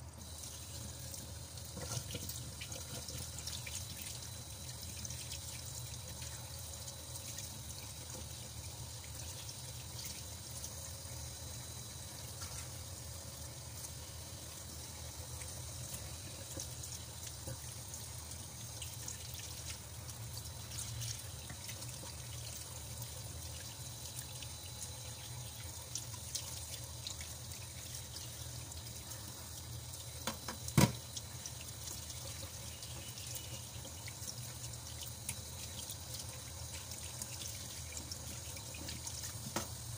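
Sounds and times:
tap running into steel sink: 30.2s - 31.2s, 38.8s - 39.8s.

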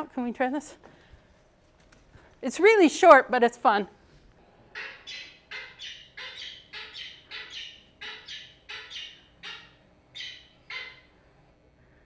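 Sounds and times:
falcon calling: 4.7s - 11.1s.

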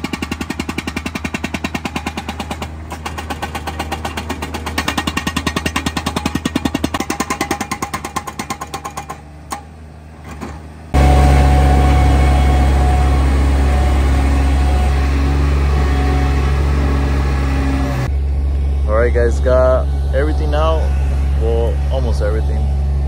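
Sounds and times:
hydraulic breaker hammering concrete: 0.0s - 9.7s
loader engine running: 0.0s - 23.0s.

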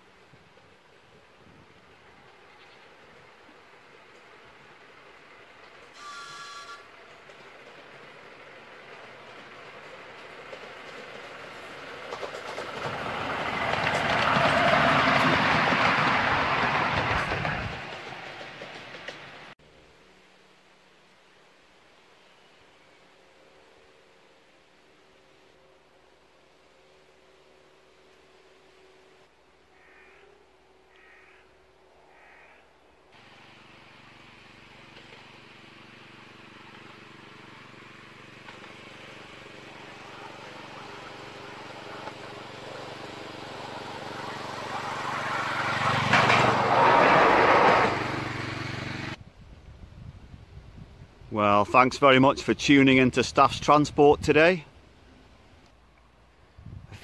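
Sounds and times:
miniature train passing: 0.0s - 21.0s, 33.1s - 49.2s.

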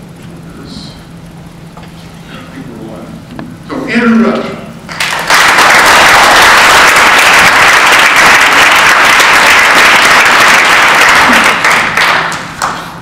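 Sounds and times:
audience applauding: 4.9s - 12.9s.

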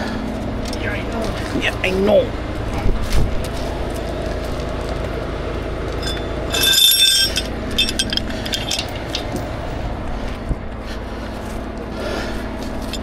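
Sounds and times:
engine running: 0.0s - 13.0s
broken glass clinking: 6.0s - 9.0s.

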